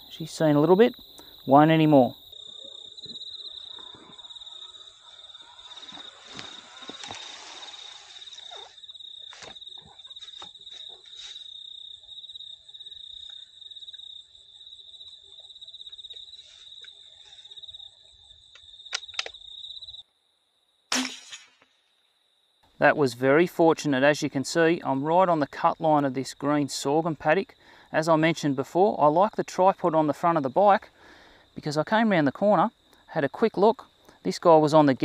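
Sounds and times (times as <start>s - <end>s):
crickets chirping: 0.0s - 20.9s, 21.6s - 35.0s
rustling: 5.7s - 11.6s.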